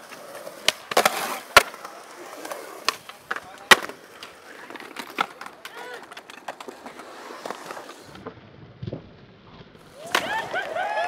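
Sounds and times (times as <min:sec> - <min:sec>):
skateboard clacking on concrete: 0:00.0 - 0:09.0
people shouting and hooting: 0:09.9 - 0:11.0.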